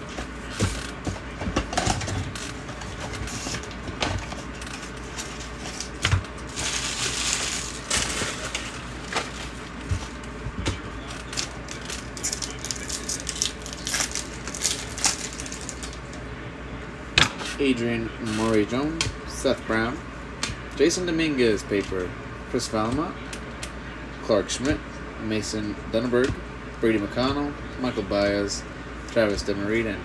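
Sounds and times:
wrappers crinkling and tearing: 0:04.6 - 0:09.6, 0:11.1 - 0:16.1.

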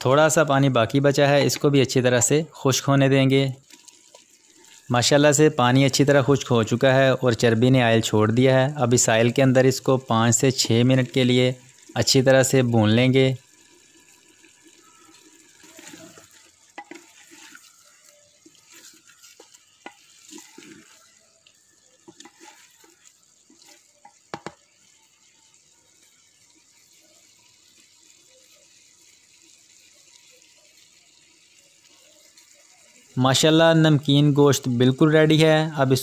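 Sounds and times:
faint frying hiss: 0:00.0 - 0:36.0
wooden spoon knocking meat: 0:15.7 - 0:21.0, 0:22.0 - 0:24.7.

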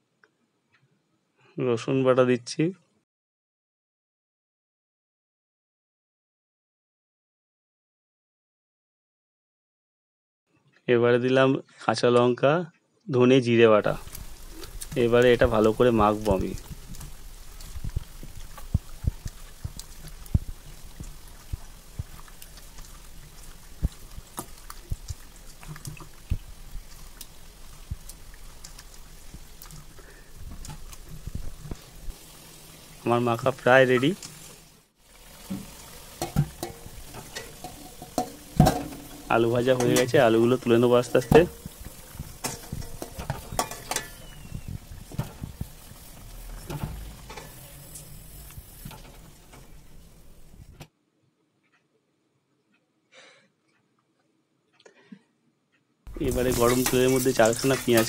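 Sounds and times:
potatoes sizzling in hot oil: 0:13.8 - 0:50.7, 0:56.1 - 0:58.0
metal spatula clinking on pan: 0:36.2 - 0:39.1, 0:42.4 - 0:44.2.

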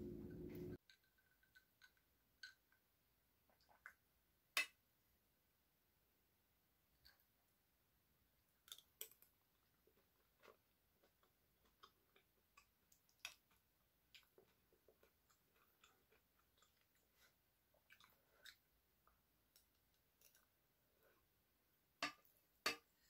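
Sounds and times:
quiet chewing: 0:08.6 - 0:21.3.

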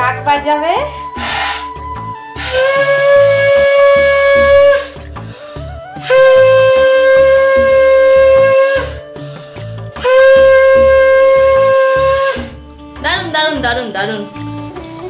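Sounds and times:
conch shell blasts: 0:01.1 - 0:05.1, 0:05.8 - 0:09.2, 0:09.9 - 0:12.6.

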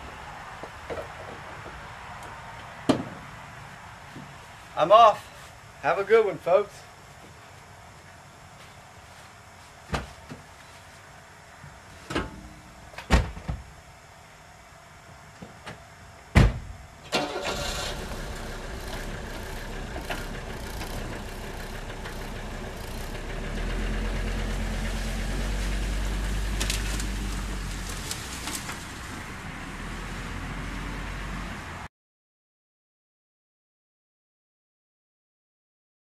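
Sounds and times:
sharp knocks and clunks: 0:02.8 - 0:03.2
diesel car engine running: 0:17.1 - 0:31.8.

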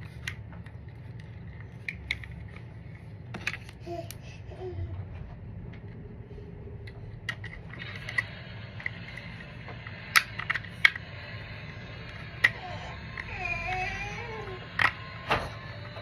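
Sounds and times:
plastic parts clicking: 0:00.0 - 0:04.2, 0:07.2 - 0:11.1, 0:14.6 - 0:16.0
low background hum: 0:00.0 - 0:16.0.

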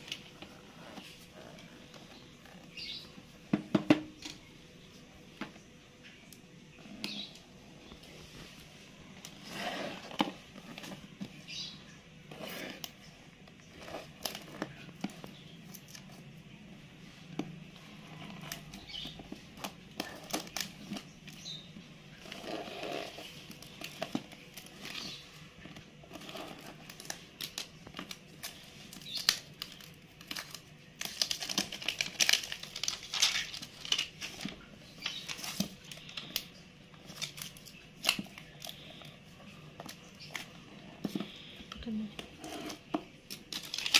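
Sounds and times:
plastic wrap crinkling: 0:12.5 - 0:43.9.

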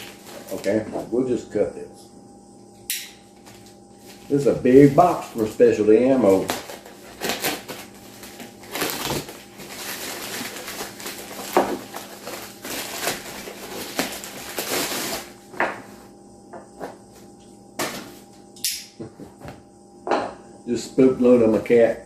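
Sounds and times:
plastic bag crinkling and tearing: 0:06.3 - 0:15.3.

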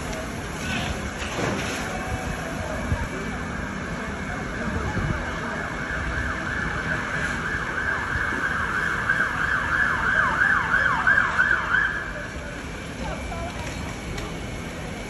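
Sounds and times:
emergency siren yelping: 0:05.2 - 0:12.4.

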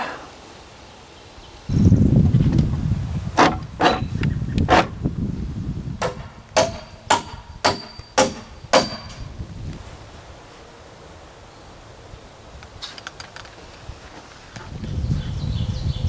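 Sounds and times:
hammer driving nails: 0:03.4 - 0:04.9, 0:06.0 - 0:09.3.

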